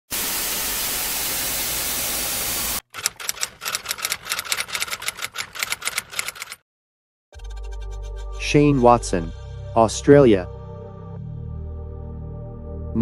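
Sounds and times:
static hiss: 0:00.1 - 0:02.8
phone keyboard typing clicks: 0:03.0 - 0:06.6.

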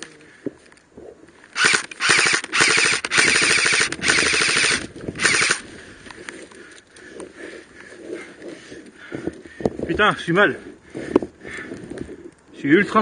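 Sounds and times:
airsoft rifle firing bursts: 0:01.6 - 0:05.6.

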